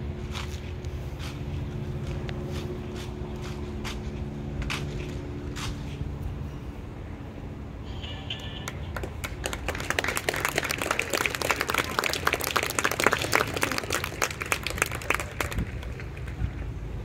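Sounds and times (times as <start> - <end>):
audience applauding: 8.9 - 16.5.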